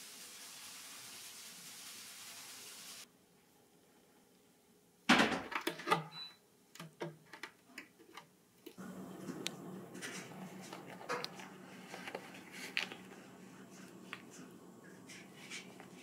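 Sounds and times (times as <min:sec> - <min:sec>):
steady low hum: 0:08.8 - 0:16.0.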